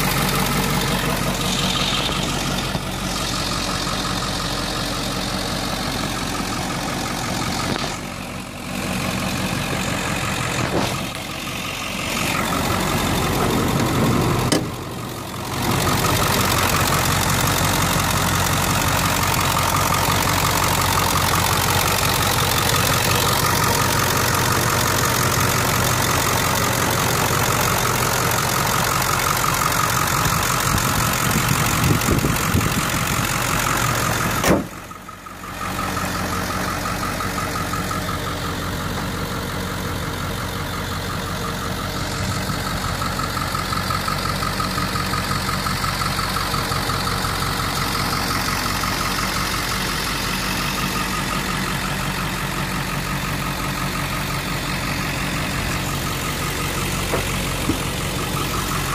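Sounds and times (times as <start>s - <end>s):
diesel engine idling: 0.0s - 58.9s.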